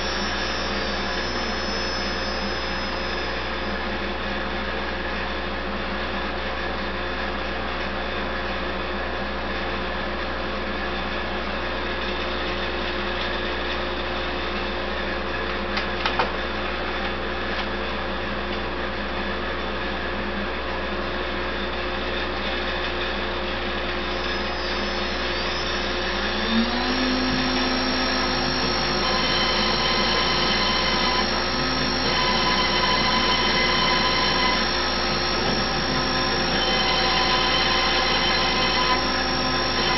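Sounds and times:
motors whining with gliding pitch: 0:00.0 - 0:03.9, 0:24.0 - 0:39.9
machine whir: 0:00.0 - 0:04.4, 0:23.6 - 0:39.9.

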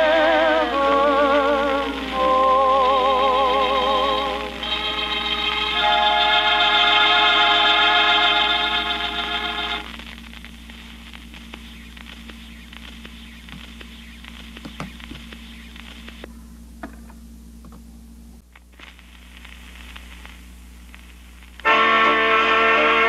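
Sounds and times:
low hum: 0:00.0 - 0:21.7
record surface crackle and hiss: 0:00.0 - 0:23.0
tonearm clicks: 0:11.3 - 0:16.3.

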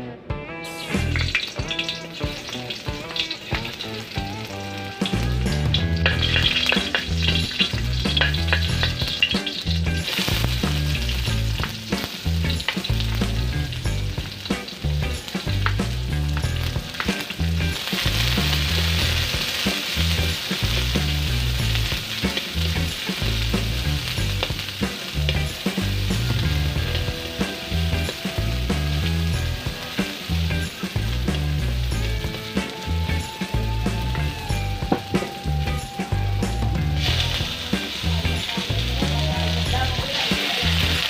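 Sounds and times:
onion and garlic sizzling in oil: 0:00.6 - 0:41.0
spatula scraping a wok: 0:01.0 - 0:13.4.

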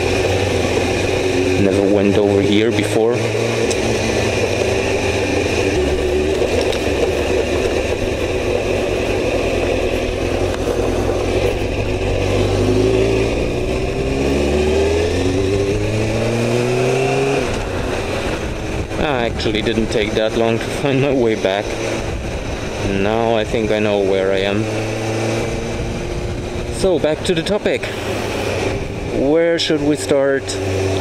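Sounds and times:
motorcycle engine running: 0:00.0 - 0:31.0
wind noise on microphone: 0:15.1 - 0:27.4.

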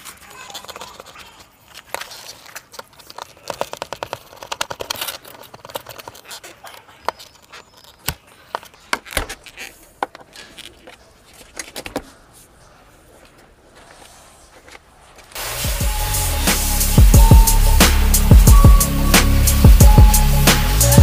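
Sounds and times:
fast run of clicks: 0:00.0 - 0:08.8
plastic clicks and scrapes: 0:00.0 - 0:12.5.

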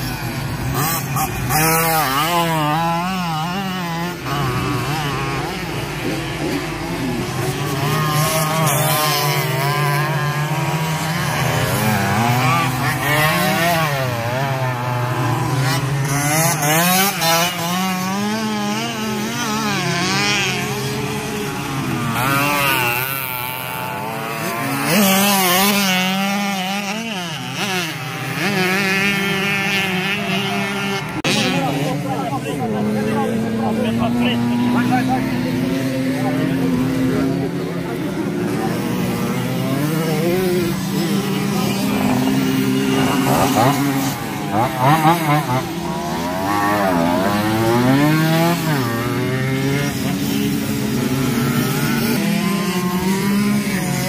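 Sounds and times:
motorcycle engines buzzing: 0:00.0 - 0:54.0.

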